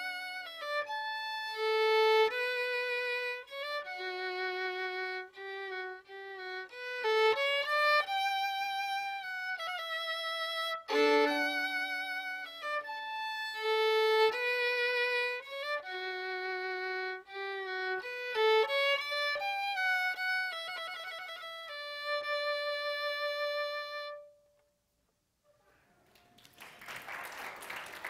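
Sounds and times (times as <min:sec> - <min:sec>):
solo violin playing slow melody: 0:00.0 - 0:24.6
audience applause: 0:26.0 - 0:28.0.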